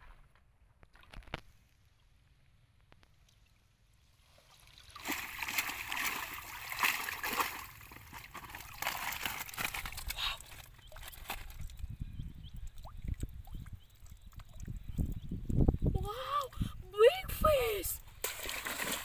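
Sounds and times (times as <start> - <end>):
muddy water splashing and sloshing: 3.0 - 11.9, 17.5 - 19.0.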